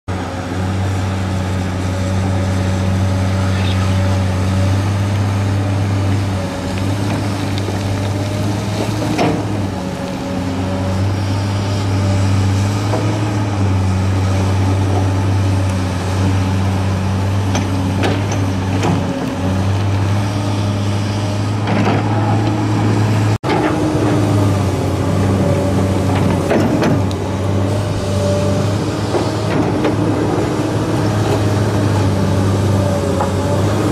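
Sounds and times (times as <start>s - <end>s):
excavator diesel engine humming: 0.1s - 33.9s.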